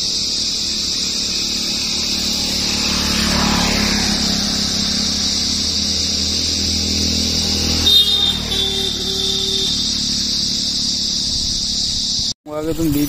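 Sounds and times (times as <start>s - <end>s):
vehicle engine running: 0.0s - 12.8s.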